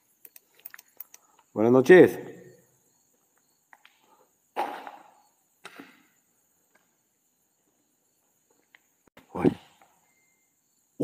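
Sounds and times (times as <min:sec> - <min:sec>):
faint clicks: 0:00.2 - 0:01.5.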